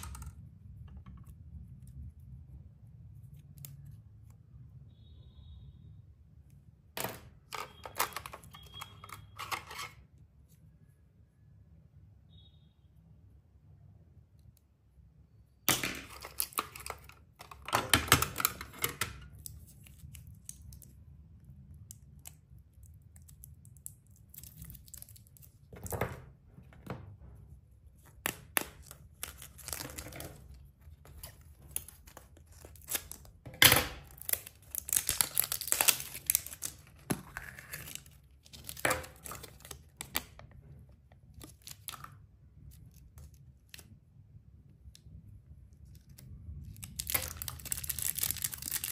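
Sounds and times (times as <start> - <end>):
plastic packaging crinkling and tearing: 22.0 - 25.7, 28.0 - 33.4, 34.0 - 40.4, 41.2 - 44.0, 45.7 - 48.9.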